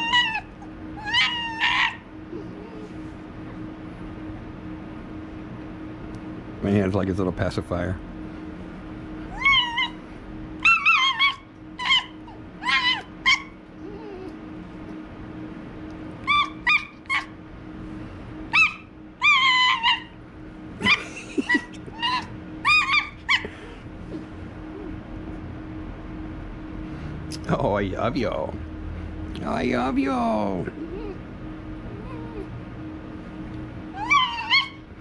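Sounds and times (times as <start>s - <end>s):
fox squeaky calls: 0.0s - 2.1s, 9.3s - 10.0s, 10.6s - 14.2s, 16.2s - 17.3s, 18.5s - 20.2s, 22.0s - 23.5s, 33.9s - 34.8s.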